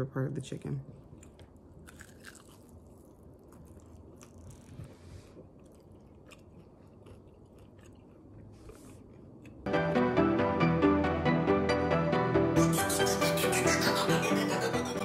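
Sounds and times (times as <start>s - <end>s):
small crunches: 1.2s - 9.6s
chewing crispy chicken: 1.2s - 9.7s.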